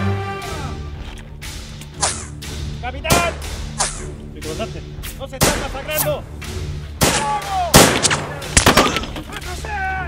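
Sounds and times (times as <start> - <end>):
men shouting: 0.0 - 1.0, 9.3 - 10.0
gunshots: 5.4 - 6.1, 7.0 - 9.2.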